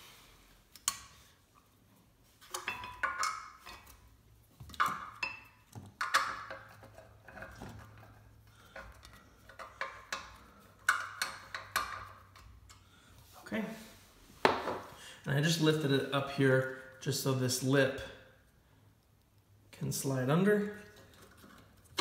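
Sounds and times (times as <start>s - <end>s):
hand tools clinking and clattering: 2.5s - 4.1s.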